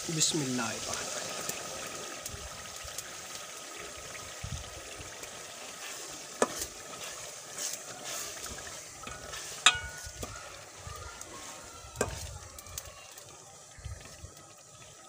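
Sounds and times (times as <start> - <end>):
peas sizzling in gravy: 0.0 - 15.0
metal ladle stirring: 5.2 - 13.4
ladle clinking against pot: 9.0 - 10.4.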